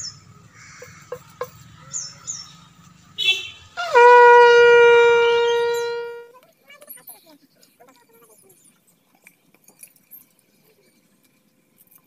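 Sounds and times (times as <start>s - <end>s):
conch shell blowing: 3.3s - 6.3s.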